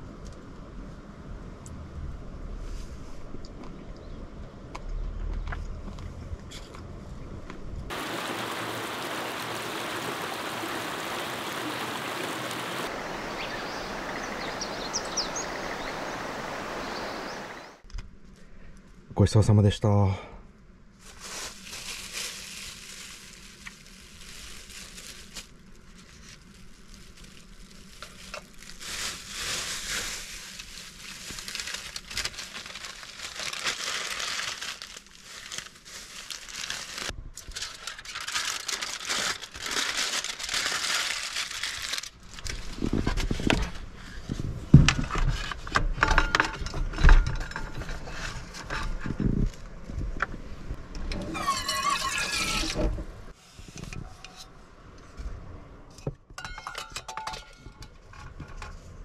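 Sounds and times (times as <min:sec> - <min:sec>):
aluminium foil crinkling: 0:21.0 - 0:43.4
cookware clattering: 0:56.4 - 0:57.7.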